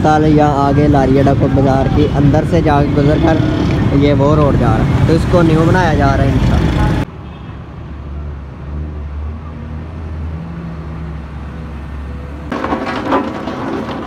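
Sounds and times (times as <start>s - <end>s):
road-building machinery clatter: 12.4s - 14.0s.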